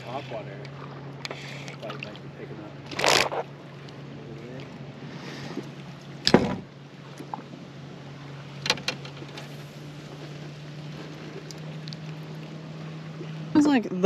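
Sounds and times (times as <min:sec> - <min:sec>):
low steady hum: 0:00.0 - 0:14.0
fish thump or splash: 0:06.2 - 0:06.7.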